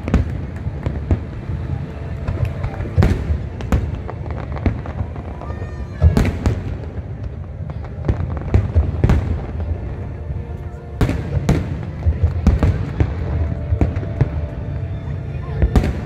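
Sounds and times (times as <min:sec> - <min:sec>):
fireworks bursting: 0:00.0 - 0:16.0
low rumble: 0:06.6 - 0:16.0.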